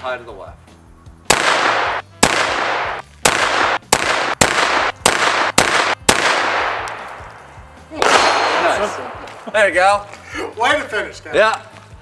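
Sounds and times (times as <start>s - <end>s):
pistol shots with echo: 1.3s - 7.3s, 8.0s - 9.4s.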